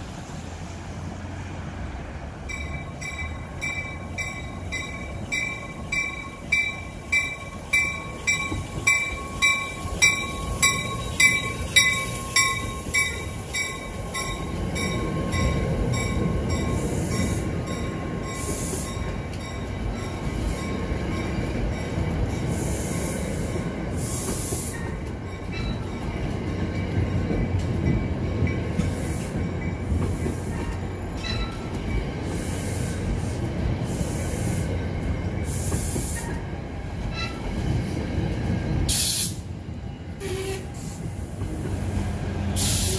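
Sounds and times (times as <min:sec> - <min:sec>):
train coaches rumbling past: 0:00.0 - 0:42.9
train warning bell ringing: 0:02.4 - 0:22.7, 0:24.7 - 0:28.9, 0:29.5 - 0:32.2, 0:36.2 - 0:37.5.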